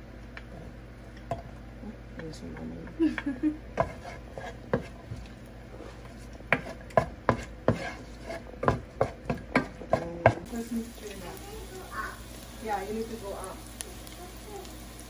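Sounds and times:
spatula knocking on frying pan: 3.8s - 4.1s, 6.5s - 10.5s.

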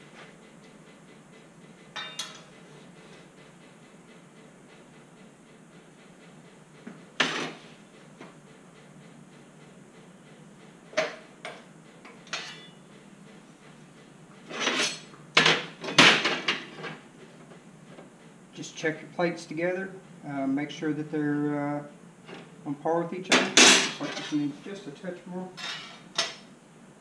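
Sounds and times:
steel plates clanking on metal: 12.3s - 12.8s, 25.6s - 26.4s.

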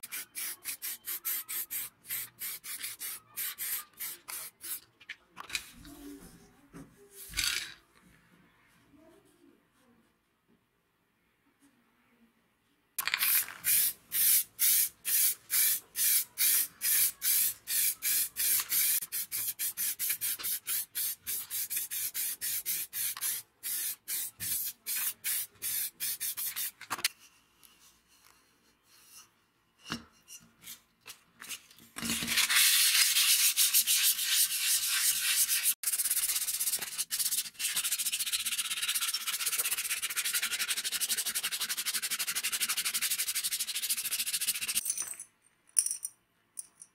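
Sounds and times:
sandpaper scratching metal plate: 32.3s - 44.8s.

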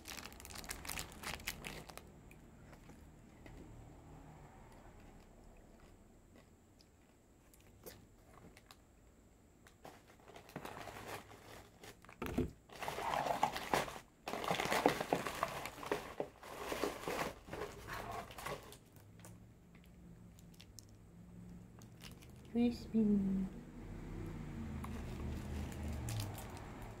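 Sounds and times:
plastic snack wrappers crinkling: 0.0s - 3.0s, 5.8s - 8.8s, 9.6s - 21.0s, 21.8s - 22.6s, 24.8s - 27.0s
hand rummaging in cardboard box: 12.7s - 18.8s.

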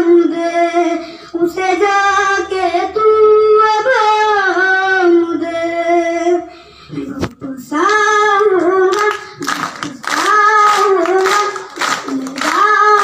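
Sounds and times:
boy singing into a microphone: 0.0s - 13.0s
hands clapping in rhythm: 7.8s - 13.0s.

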